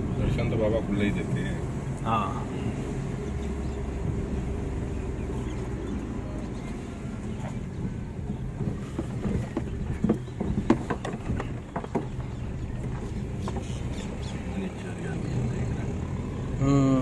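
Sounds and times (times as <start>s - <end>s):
car engine and road rumble: 0.0s - 17.0s
irregular knocks and clicks: 7.4s - 13.8s.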